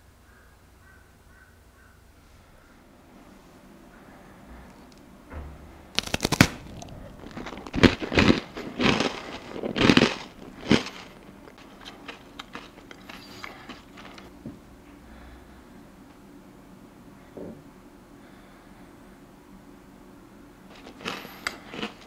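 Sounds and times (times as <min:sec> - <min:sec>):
crunching biscuit: 0:06.0 - 0:14.4, 0:20.7 - 0:22.0.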